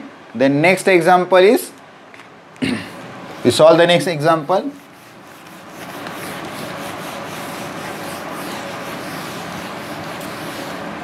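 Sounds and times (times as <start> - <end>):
duster scrubbing whiteboard: 3.3 - 11.0.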